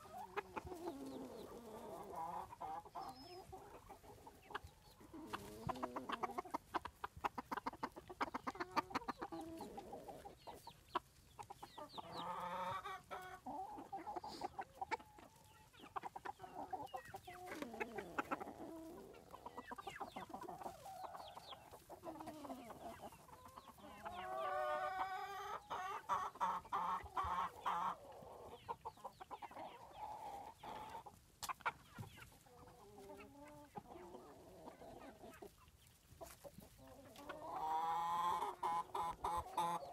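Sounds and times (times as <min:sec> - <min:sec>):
chickens clucking: 0:00.0 - 0:39.9
chicken squawks: 0:37.2 - 0:39.9.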